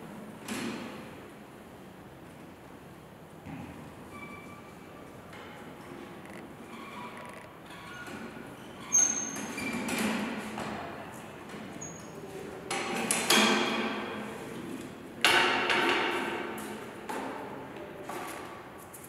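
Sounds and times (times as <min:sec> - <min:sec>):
brief high squeaks: 0:04.1 - 0:04.9, 0:06.7 - 0:09.9
cart knocking on concrete floor: 0:15.2 - 0:16.4.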